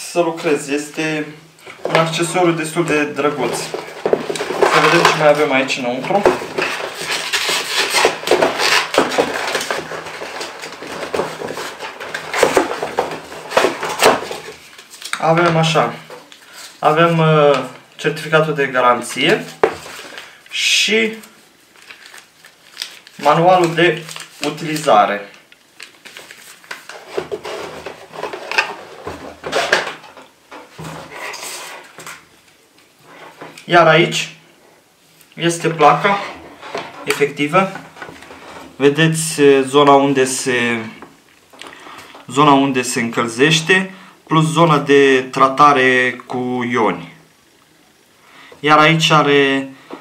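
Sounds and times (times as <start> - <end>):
paper rustling in cardboard box: 3.2 - 16.8, 21.2 - 24.9, 25.8 - 30.0.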